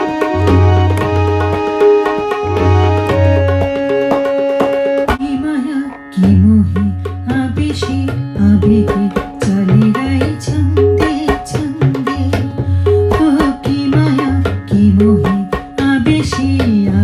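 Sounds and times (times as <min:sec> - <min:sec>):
melodic line: 0:00.0 - 0:05.2
tabla pattern: 0:00.0 - 0:17.0.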